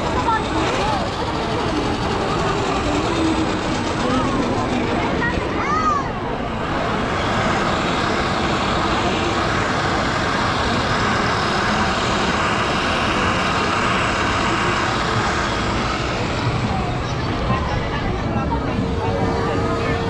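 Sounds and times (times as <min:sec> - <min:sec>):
faint crowd chatter: 0:00.0 - 0:20.0
street noise: 0:00.0 - 0:20.0.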